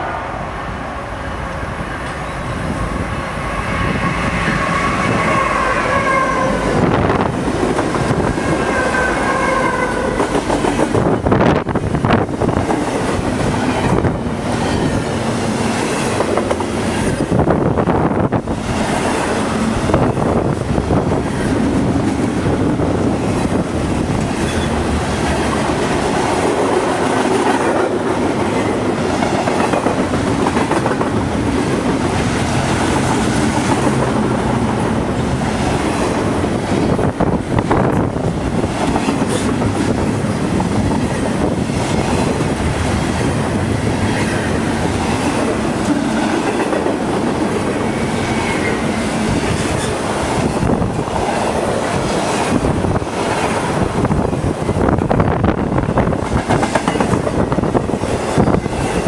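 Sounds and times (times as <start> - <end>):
wind noise on microphone: 0.0 - 59.0
steel wheels running on rails: 6.6 - 59.0.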